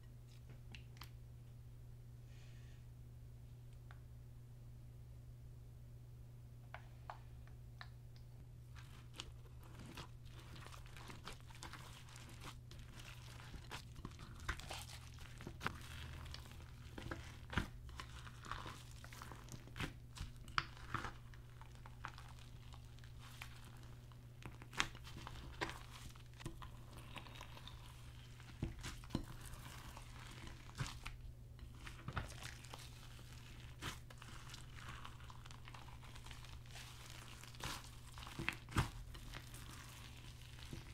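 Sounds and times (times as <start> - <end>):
steady low hum: 0.0 - 40.9
slime wet crackles and pops: 8.8 - 40.9.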